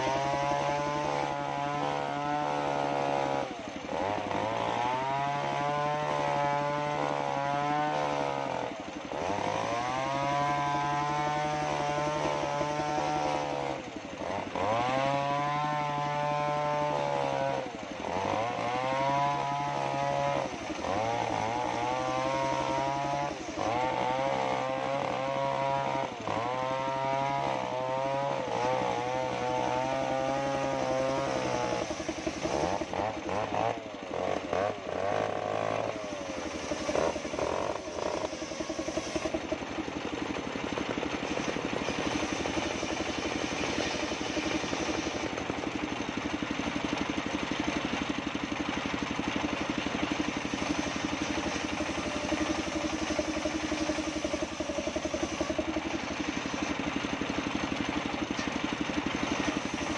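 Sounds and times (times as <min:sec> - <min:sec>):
circular saw blade cutting wood: 0:00.0 - 0:59.9.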